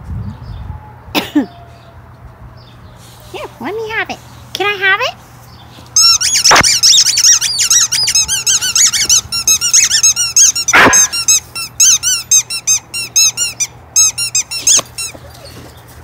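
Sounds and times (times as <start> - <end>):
squeaky dog toy squeaking: 6.0 - 15.5.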